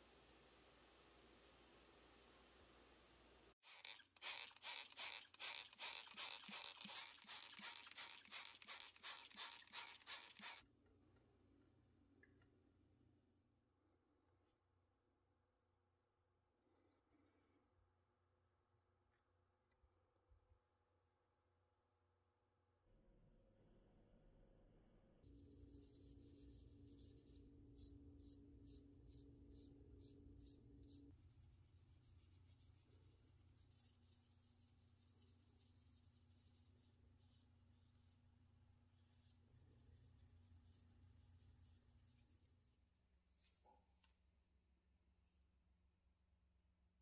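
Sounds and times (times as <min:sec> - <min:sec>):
foam wand scratching on metal: 0:03.6 - 0:10.6
spray bottle squirts: 0:03.6 - 0:10.6.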